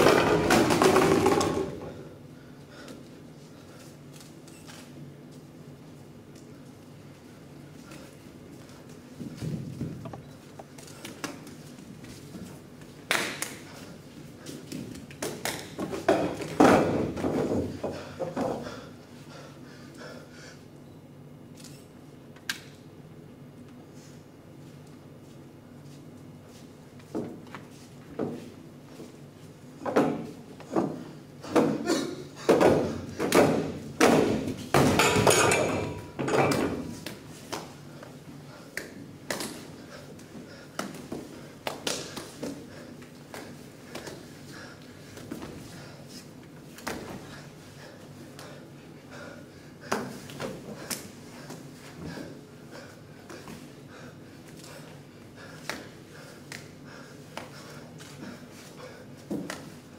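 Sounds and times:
bare feet slapping on tiles: 0:40.5 - 0:44.3.

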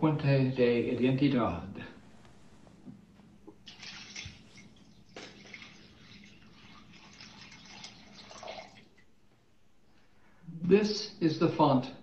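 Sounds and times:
water pouring into glass bowl: 0:03.6 - 0:09.1.

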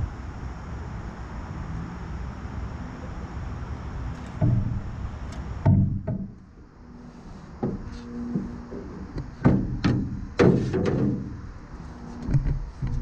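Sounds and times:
knocks on metal canoe hull: 0:04.3 - 0:06.5, 0:07.6 - 0:11.4.

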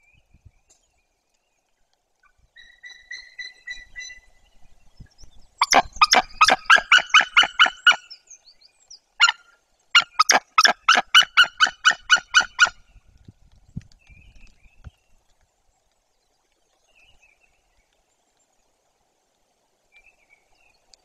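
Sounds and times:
eagle yelping calls: 0:05.6 - 0:08.2, 0:09.2 - 0:12.8.

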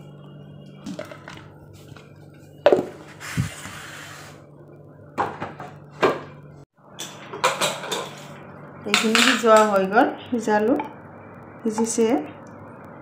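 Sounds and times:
low steady hum: 0:00.0 - 0:13.0
pots and utensils clattering: 0:07.0 - 0:09.7.

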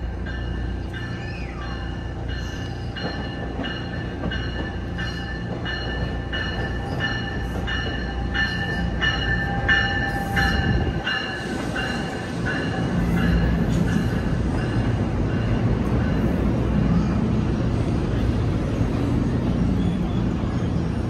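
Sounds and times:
train bell ringing: 0:00.0 - 0:16.5
low rumble of train: 0:00.0 - 0:21.0.

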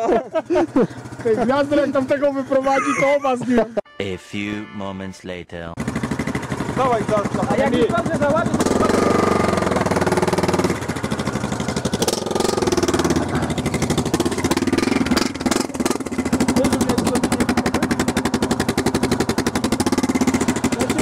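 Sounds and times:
off-road vehicle engine revving: 0:00.0 - 0:02.9, 0:05.7 - 0:21.0.

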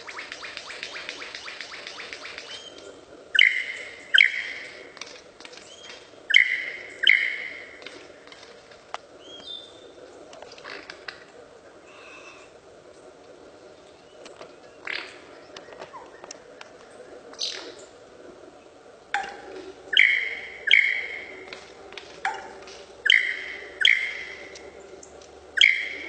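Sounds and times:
bird laser gun zaps: 0:00.0 - 0:02.8.

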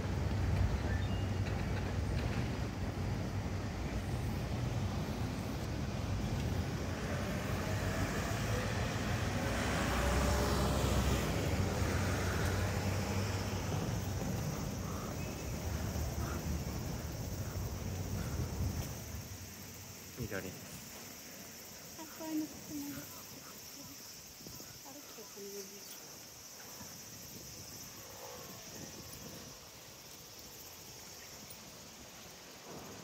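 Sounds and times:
city traffic noise: 0:00.0 - 0:30.9
vehicle passing with low rumble: 0:02.0 - 0:19.6.

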